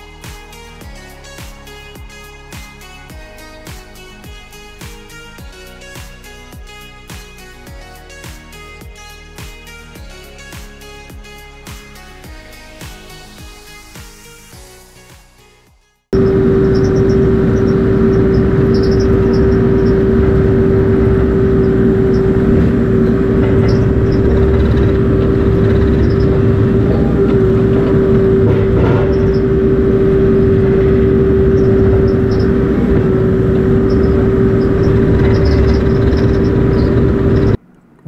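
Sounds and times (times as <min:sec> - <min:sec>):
excavator engine rumble: 0:16.2 - 0:38.0
steady whine: 0:16.2 - 0:38.0.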